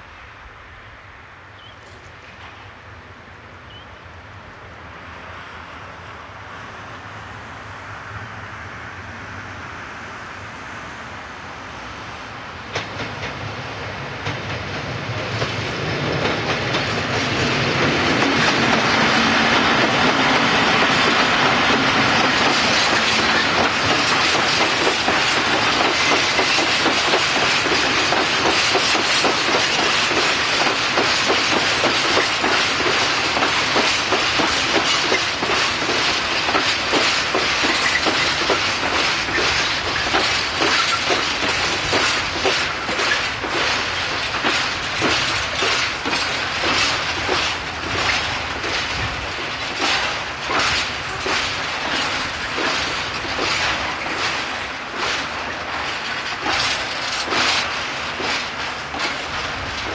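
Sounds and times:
diesel locomotive passing: 0.0 - 59.9
wagon wheels clickety-clack: 20.8 - 59.9.

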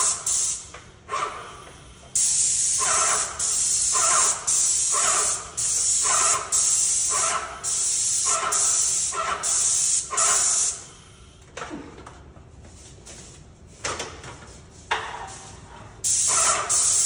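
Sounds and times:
paint sprayer hissing: 0.0 - 0.8, 2.1 - 10.9, 16.0 - 17.0.

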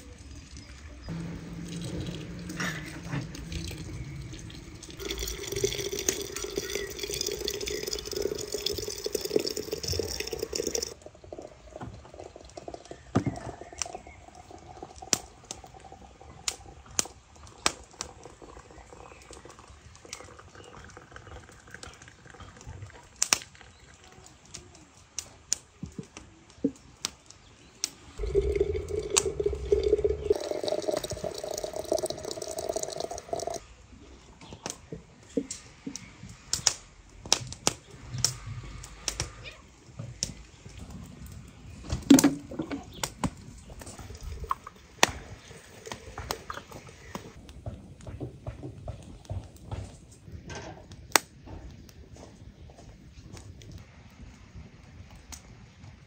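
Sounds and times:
water pouring into glass jar: 0.6 - 23.8, 28.2 - 33.6.

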